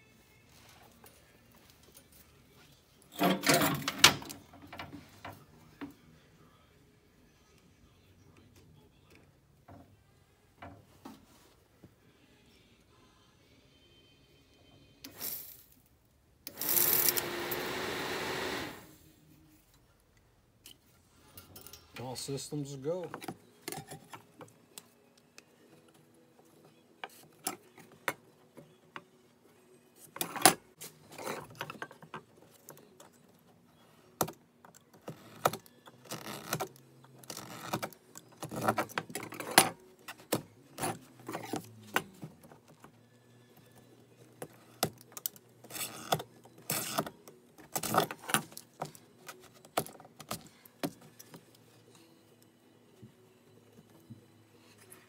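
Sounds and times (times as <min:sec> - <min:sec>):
tools clicking and tapping: 0:23.0 - 0:26.0.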